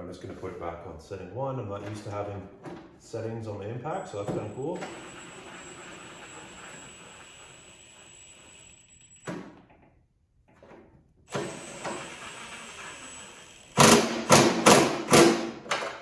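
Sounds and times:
impact driver hammering: 11.3s - 15.8s.

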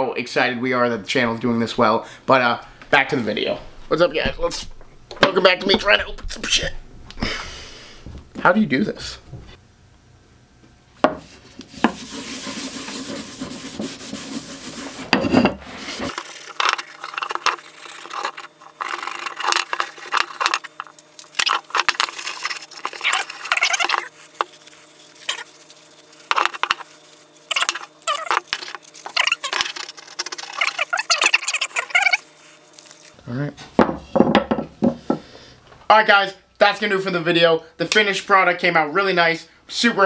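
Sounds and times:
cloth rag rubbing wood: 11.2s - 33.1s
mallet knocking on workbench: 33.8s - 35.2s.

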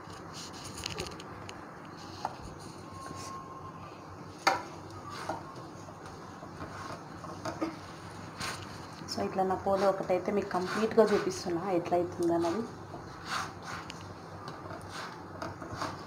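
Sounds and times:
spatula scraping griddle: 5.0s - 5.4s, 6.4s - 13.9s, 14.6s - 16.0s.

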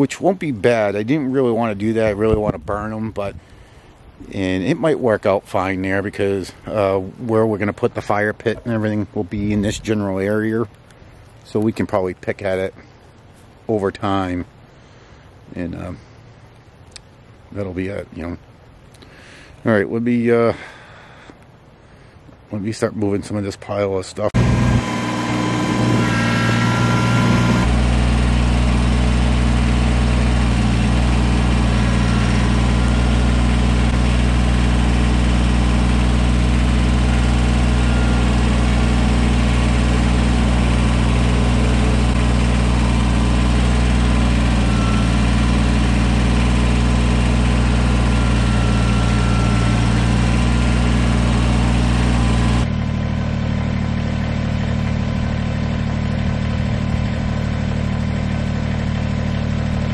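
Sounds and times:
tractor diesel engine running: 24.4s - 59.9s.

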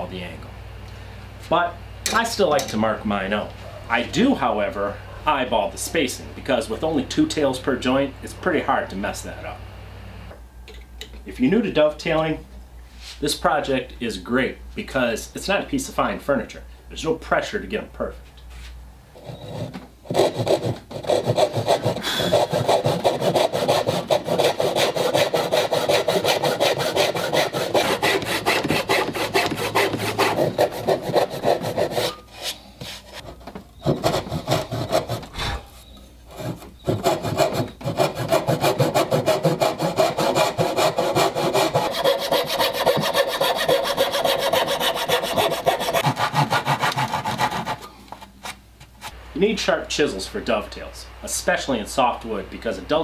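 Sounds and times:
hand saw rasping through wood: 19.2s - 33.1s, 33.8s - 35.6s, 36.3s - 47.9s.

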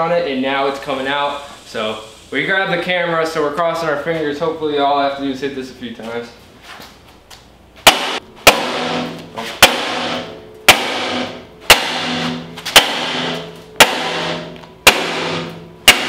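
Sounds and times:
sledgehammer striking steel: 7.8s - 16.0s.

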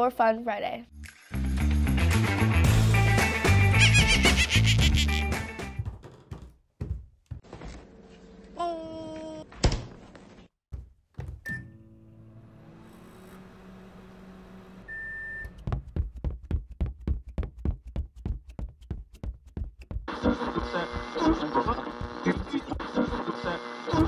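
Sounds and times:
microwave beeping: 11.4s - 11.9s, 14.8s - 15.6s.

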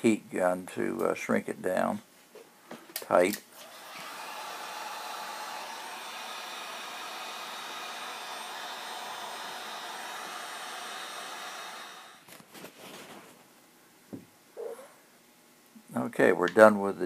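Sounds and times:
heat gun fan blowing: 3.0s - 12.3s.

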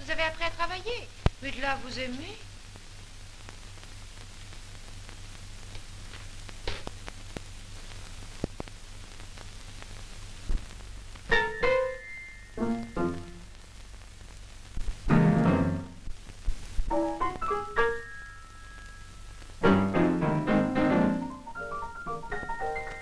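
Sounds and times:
old film soundtrack hiss: 0.0s - 23.0s
faint clicks: 5.3s - 11.3s
piano notes: 11.3s - 13.4s, 15.1s - 16.0s, 16.9s - 23.0s.

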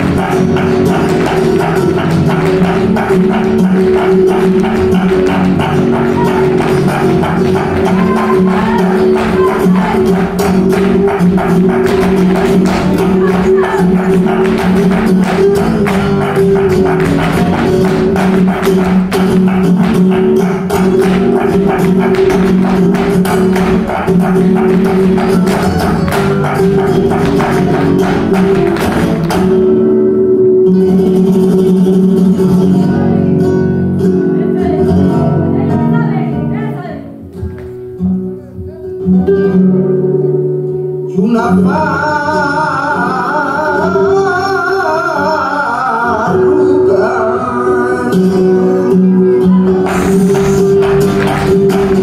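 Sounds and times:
dancers' footwork clicking on stage: 0.0s - 29.7s, 49.8s - 52.0s
flamenco music: 0.0s - 52.0s.

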